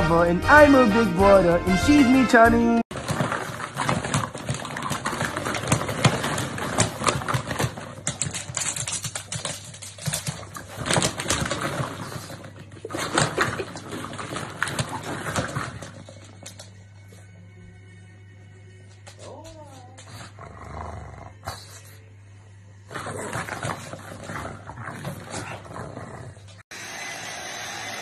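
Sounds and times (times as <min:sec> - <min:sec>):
plastic balls clattering together: 0:02.9 - 0:16.7, 0:22.9 - 0:25.5.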